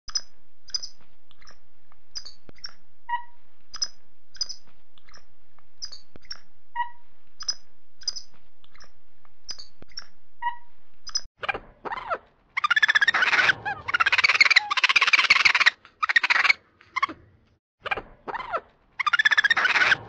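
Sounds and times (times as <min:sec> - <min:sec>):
high-pitched chirps and whistles: 0:00.1 - 0:01.6, 0:02.2 - 0:05.2, 0:05.8 - 0:08.9, 0:09.5 - 0:11.3.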